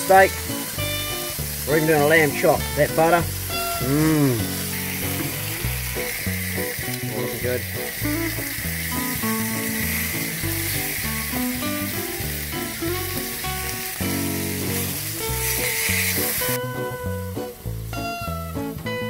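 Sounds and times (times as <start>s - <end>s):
meat sizzling on a hot plate: 0.0s - 18.9s
background music: 0.0s - 19.0s.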